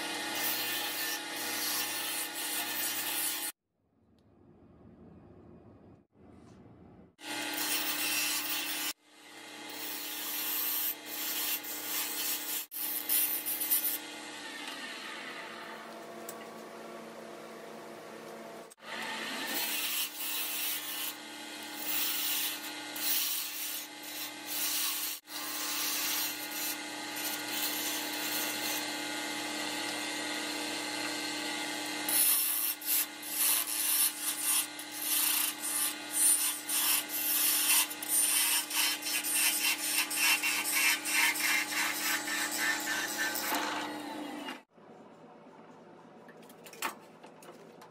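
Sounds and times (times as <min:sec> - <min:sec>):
tools cutting spinning wood: 0:07.2 - 0:15.4, 0:18.8 - 0:44.7.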